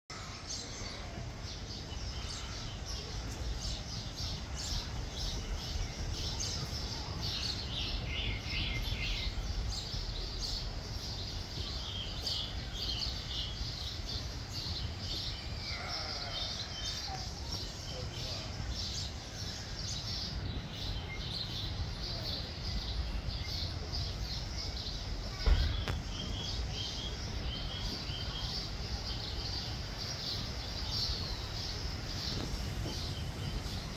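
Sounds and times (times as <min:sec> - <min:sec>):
single thump: 0:25.4 - 0:26.0.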